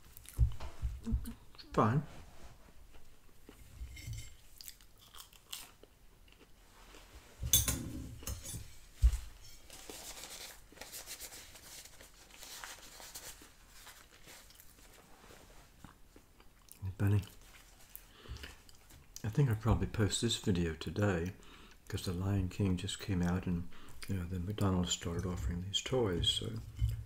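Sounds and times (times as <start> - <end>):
mouth chewing: 4.5 - 7.1, 15.8 - 19.2
paper napkin rustling: 9.0 - 15.8.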